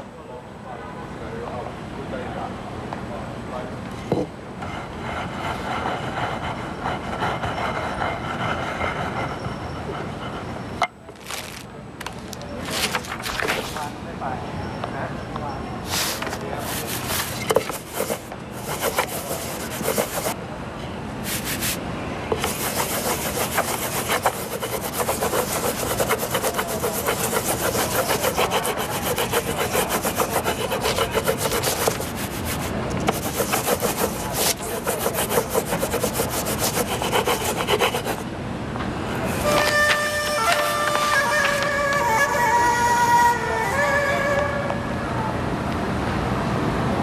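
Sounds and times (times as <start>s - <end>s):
baren rubbing on paper: 15.9s - 20.4s, 21.2s - 38.2s, 39.2s - 42.5s.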